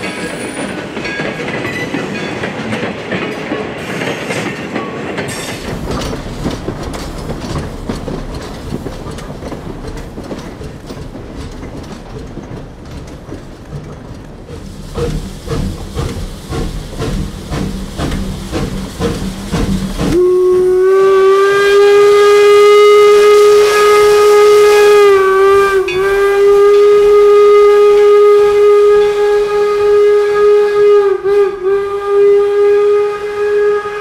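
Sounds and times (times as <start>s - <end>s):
train rhythmic clatter: 0.0s - 34.0s
steam whistle blast: 20.1s - 34.0s.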